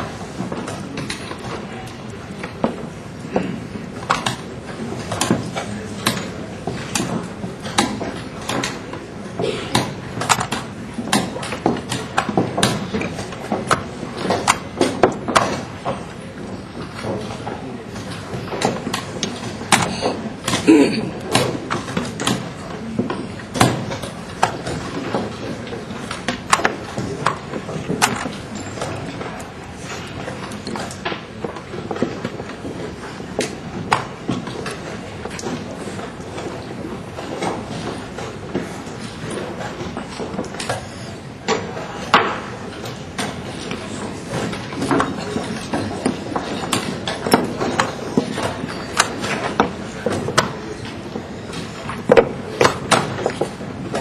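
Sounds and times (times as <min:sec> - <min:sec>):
chess pieces clacking on boards: 0:00.0 - 0:54.0
murmur of a crowded hall: 0:00.0 - 0:54.0.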